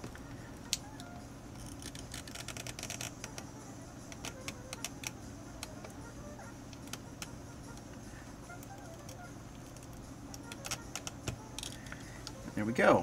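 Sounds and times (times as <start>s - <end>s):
fingers clicking on tape cartridge: 1.0s - 3.5s, 4.1s - 6.0s, 6.7s - 7.9s, 8.5s - 11.8s.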